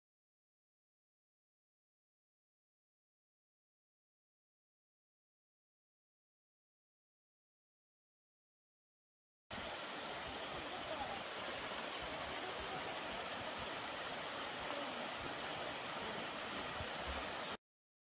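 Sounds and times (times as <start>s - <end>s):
waterfall over rocks: 9.5s - 17.6s.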